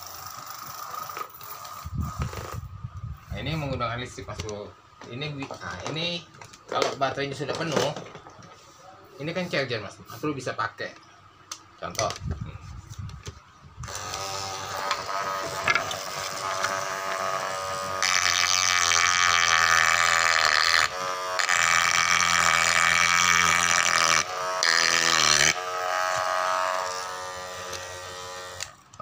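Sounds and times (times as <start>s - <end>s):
small electric motor whining: 0.0s - 3.8s, 12.5s - 29.0s
drill bit grinding into wood: 13.8s - 28.9s.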